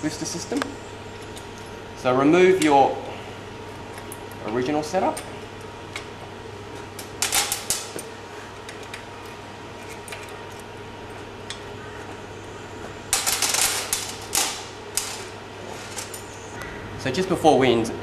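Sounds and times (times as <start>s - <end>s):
small metal parts clinking: 13.1s - 15.3s.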